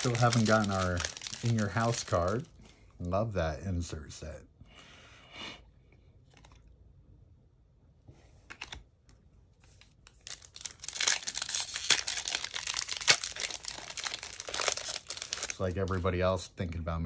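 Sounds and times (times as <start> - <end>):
foil wrapper tearing and crinkling: 0.0 - 2.5, 10.1 - 16.1
trading cards handled: 8.4 - 16.1.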